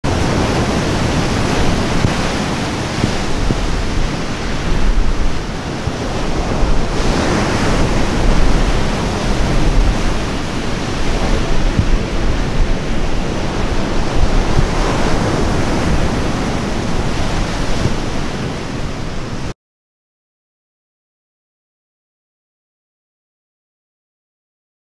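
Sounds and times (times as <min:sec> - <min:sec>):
wind rumbling on microphone: 0:00.0 - 0:19.5
waves crashing on pebble beach: 0:00.1 - 0:19.5.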